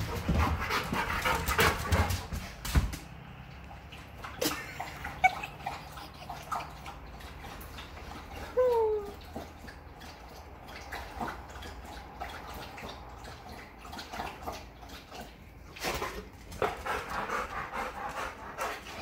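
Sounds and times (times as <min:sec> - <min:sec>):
dog paws thumping on wooden floor: 0:00.0 - 0:03.2
dog whining: 0:08.4 - 0:09.2.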